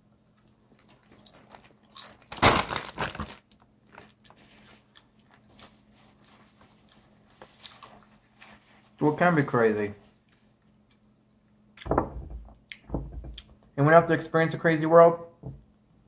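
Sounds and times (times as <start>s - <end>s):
crunchy bites and chewing: 0.8s - 5.5s.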